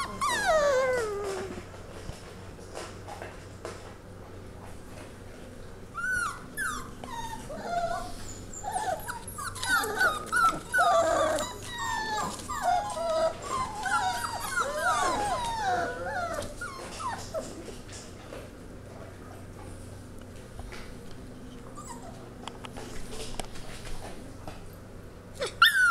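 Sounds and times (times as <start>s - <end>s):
puppies whining and whimpering: 0.0s - 1.7s, 5.9s - 17.7s, 21.6s - 22.4s, 25.4s - 25.9s.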